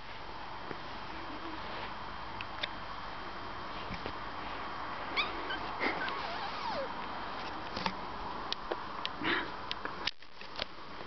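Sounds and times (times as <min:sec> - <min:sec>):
puppy squeaks: 0:05.2 - 0:06.9.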